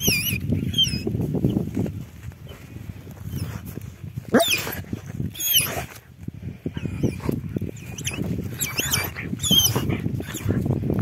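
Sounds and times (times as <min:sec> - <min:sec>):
scuffling and rustling: 0:00.3 - 0:06.4
dog whining: 0:04.3 - 0:05.9, 0:06.8 - 0:10.5.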